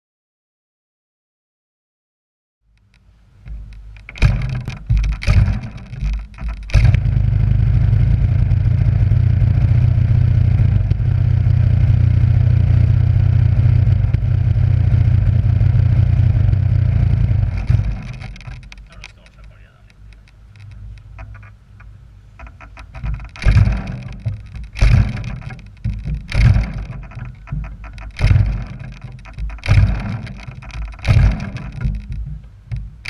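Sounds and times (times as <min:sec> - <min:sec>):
sharp knocks and clatter: 0:02.8 - 0:33.0
two-stroke engine idling: 0:04.1 - 0:19.7, 0:22.4 - 0:32.1.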